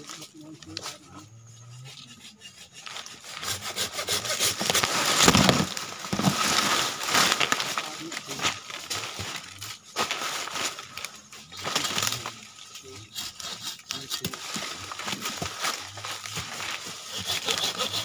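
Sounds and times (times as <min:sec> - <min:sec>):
hand saw rasping through branch: 0:00.0 - 0:07.7, 0:11.6 - 0:18.0.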